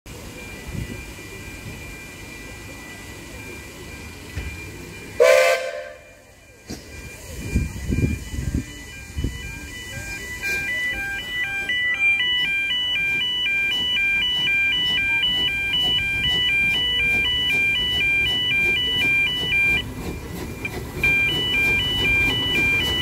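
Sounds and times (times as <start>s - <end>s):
steam locomotive rumble: 0.1s - 23.0s
two-tone warbling alarm: 0.4s - 23.0s.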